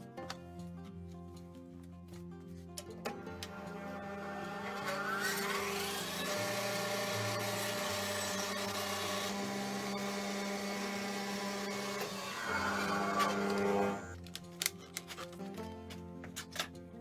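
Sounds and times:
electric motor humming and whining: 3.3s - 14.2s.

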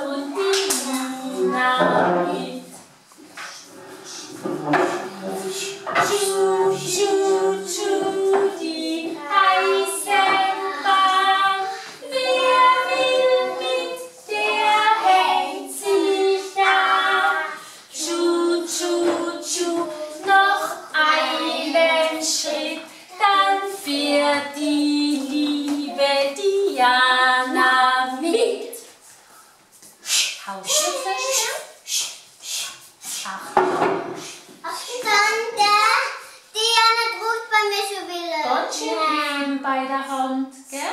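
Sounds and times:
children singing: 0.0s - 2.7s, 4.1s - 28.5s
woman singing: 0.0s - 2.8s, 5.9s - 28.7s.

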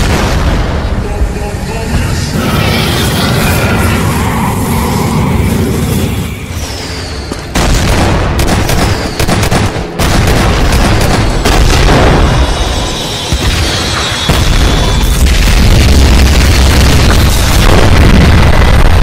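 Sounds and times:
cartoon explosions: 0.0s - 19.0s
rapid gunfire: 7.6s - 12.6s, 13.3s - 19.0s.

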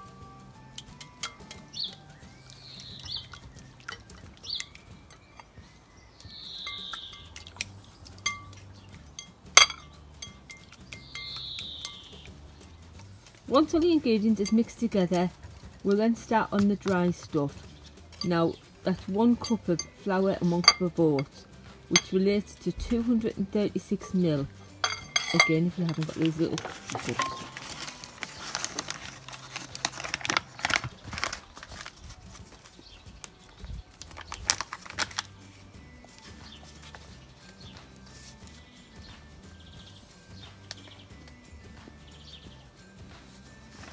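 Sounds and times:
whisk clinking against glass bowl: 8.2s - 8.6s, 9.2s - 12.3s, 24.0s - 27.6s
paper bag crinkling: 25.8s - 37.5s.

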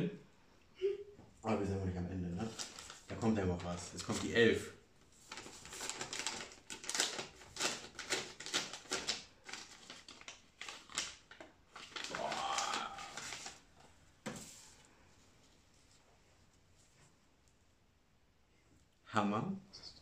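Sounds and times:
paper envelope tearing and crackling: 2.4s - 4.3s, 5.2s - 13.7s
man's short rising vocal sound: 12.2s - 13.2s.

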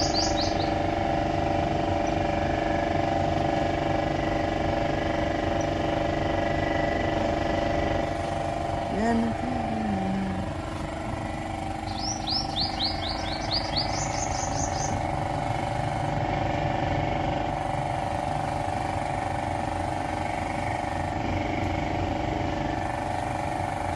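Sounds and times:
bird calling high notes: 0.0s - 0.8s, 11.9s - 15.0s
low mechanical hum: 0.0s - 23.9s.

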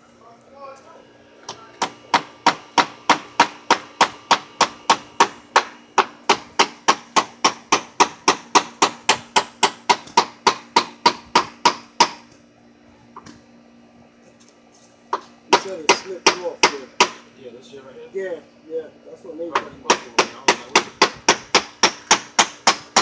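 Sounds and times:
hammer striking wooden fence: 1.5s - 12.3s, 15.1s - 17.3s, 19.5s - 23.0s.

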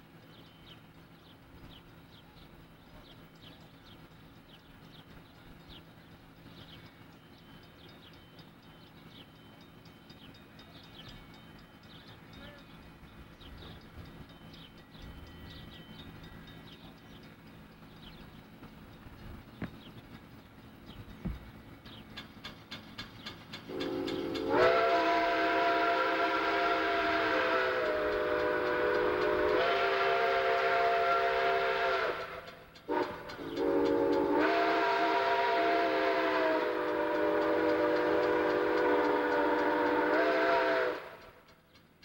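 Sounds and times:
steam whistle blasts: 23.7s - 41.4s.

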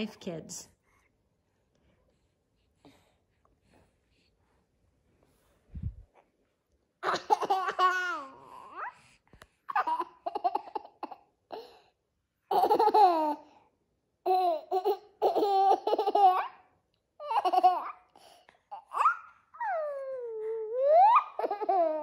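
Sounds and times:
small children laughing: 7.0s - 8.5s, 12.5s - 13.6s, 20.8s - 22.0s.

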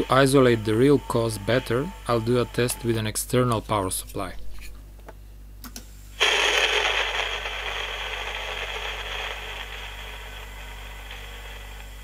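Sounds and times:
cassette recorder speaker hiss: 0.0s - 12.0s.

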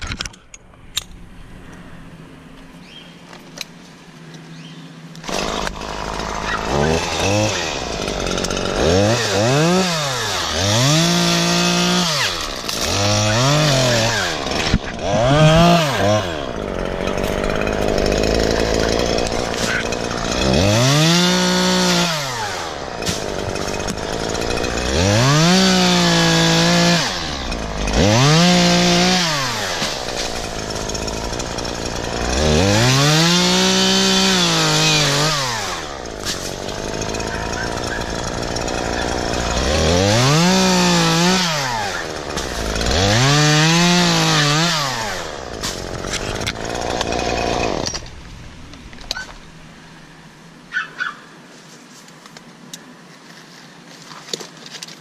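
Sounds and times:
chainsaw revving and cutting: 5.2s - 48.1s.

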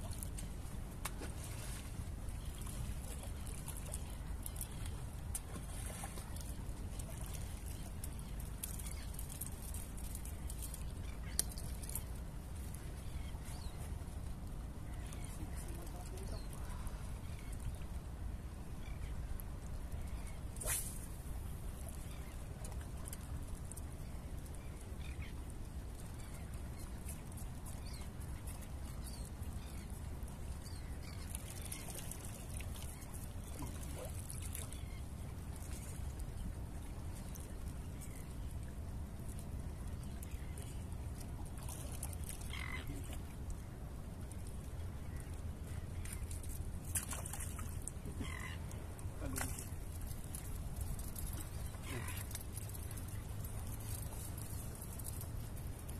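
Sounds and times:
waves lapping against rocks: 44.3s - 55.9s.

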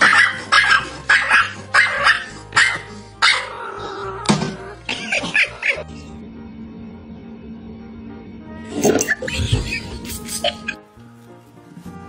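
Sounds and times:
small dog barking: 0.0s - 3.6s
background music: 0.0s - 12.0s.

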